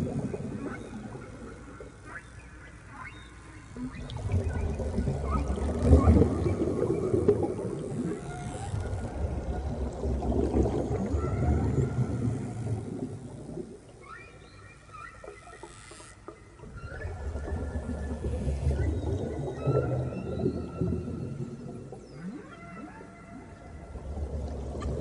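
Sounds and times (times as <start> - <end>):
low underwater rushing rumble: 0.0 - 1.9, 3.8 - 14.0, 16.6 - 22.2, 23.4 - 25.0.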